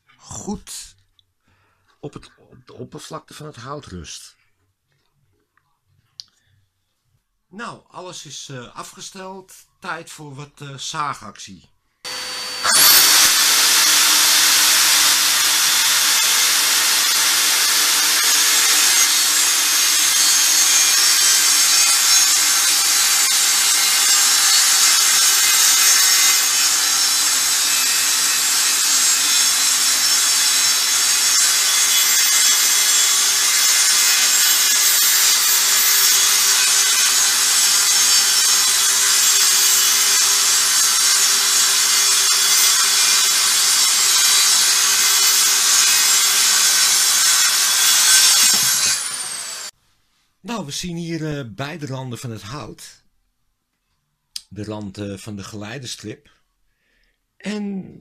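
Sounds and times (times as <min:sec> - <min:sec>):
circular saw cutting wood: 0:12.1 - 0:49.8.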